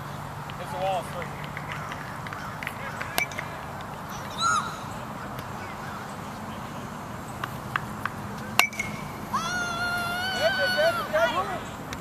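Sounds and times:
baseball bat hitting ball: 1.4 - 3.5, 7.4 - 9.2.

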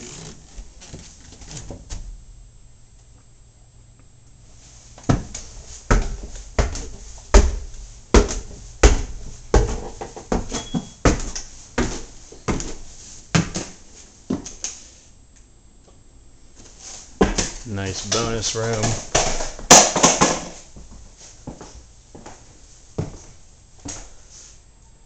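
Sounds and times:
footsteps on wooden stairs: 5.0 - 14.5, 20.8 - 22.4.

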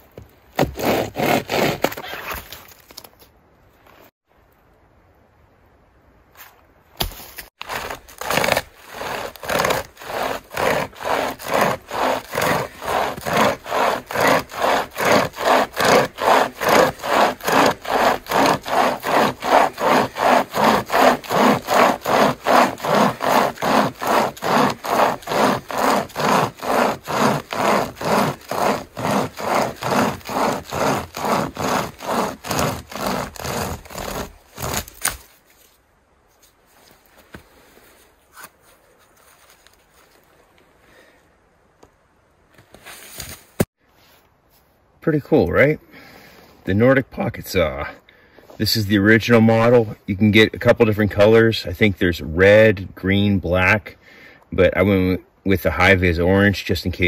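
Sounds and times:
pocket chainsaw rasping through log: 0.6 - 2.0, 7.6 - 35.2.

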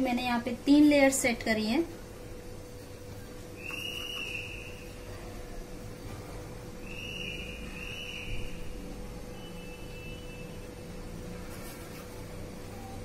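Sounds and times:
faint steady hum: 0.0 - 13.0
high whistle-like tones: 3.6 - 4.9, 6.8 - 10.6.

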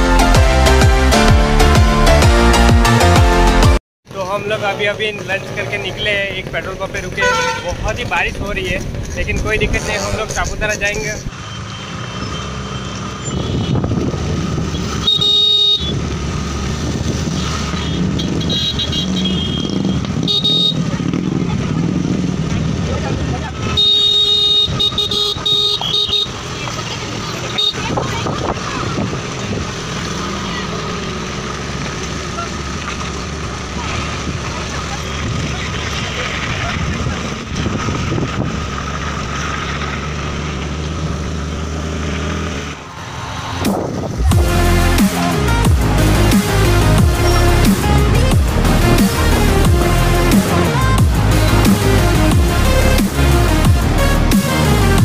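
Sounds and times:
wind and tyre noise: 4.0 - 44.6
vehicle horn blasts: 7.2 - 7.8, 14.7 - 16.0, 17.8 - 20.8, 23.7 - 26.5, 27.5 - 28.0
scooter engine running: 11.3 - 42.8, 43.8 - 55.0.

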